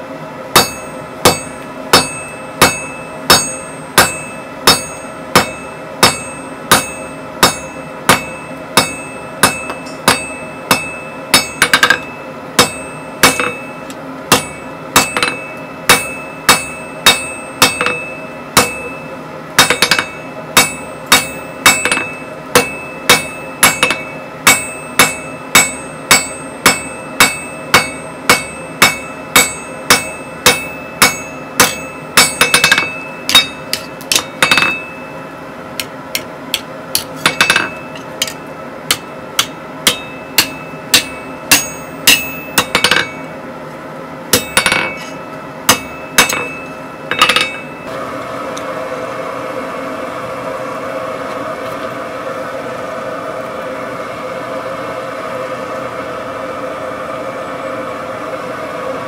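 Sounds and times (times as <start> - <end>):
anvil ringing: 0.5 - 35.3, 36.5 - 43.4, 44.3 - 47.9
hammer striking steel on anvil: 0.5 - 43.4, 44.3 - 47.9.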